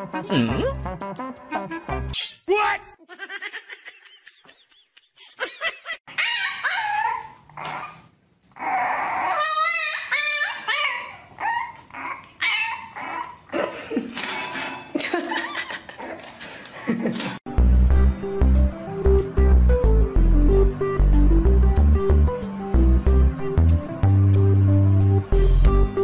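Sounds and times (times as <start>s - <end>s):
dog yipping and whining: 6.1s - 13.5s.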